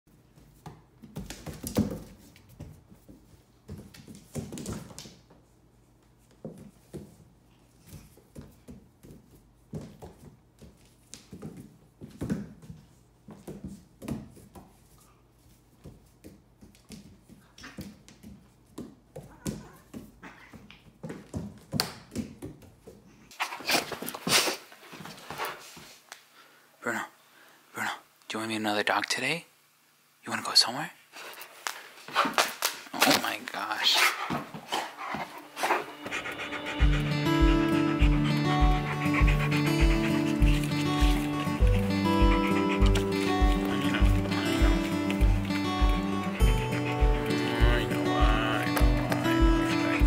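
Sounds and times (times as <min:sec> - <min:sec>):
thumps and scuffles on floor: 0:00.3 - 0:05.5, 0:31.4 - 0:33.2, 0:34.0 - 0:36.2.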